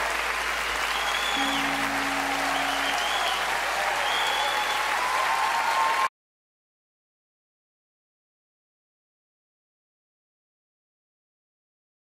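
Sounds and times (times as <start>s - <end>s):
audience applauding and cheering: 0.0s - 6.1s
whistles from crowd: 0.8s - 6.1s
guitar notes: 1.4s - 3.8s.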